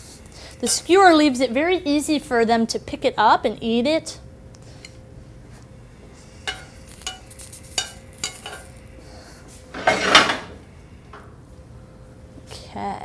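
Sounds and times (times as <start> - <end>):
scraping on a plate: 6.4 - 10.5.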